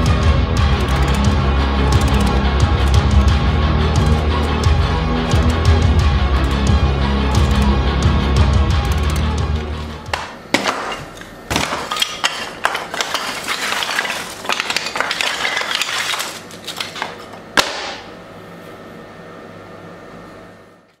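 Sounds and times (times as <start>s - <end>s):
wooden sticks clacking together: 10.1s - 17.9s.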